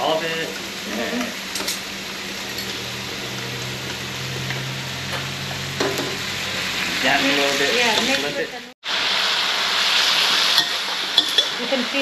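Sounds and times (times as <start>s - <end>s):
noodles sizzling in a wok: 0.0s - 12.0s
spatula clinking against wok: 10.6s - 11.6s.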